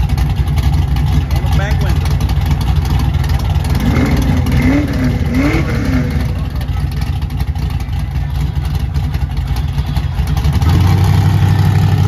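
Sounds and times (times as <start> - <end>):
truck engine idling and revving: 0.0 - 12.0.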